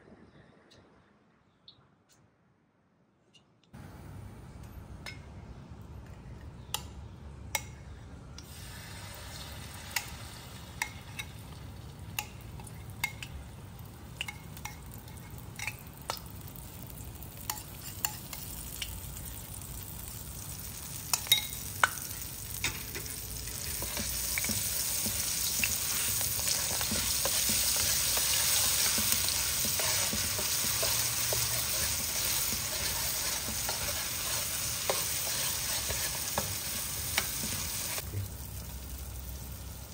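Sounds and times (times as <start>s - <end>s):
oil ticking in a wok: 8.4s - 33.9s
paste sizzling in hot oil: 8.5s - 39.9s
metal spatula stirring: 22.6s - 38.0s.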